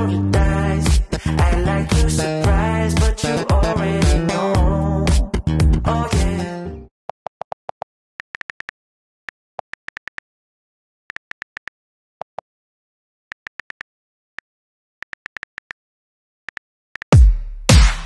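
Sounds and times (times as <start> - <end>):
phone keyboard clicks: 7.2 - 8.8, 9.6 - 10.2, 11.1 - 12.4, 13.3 - 15.8, 16.5 - 17.1.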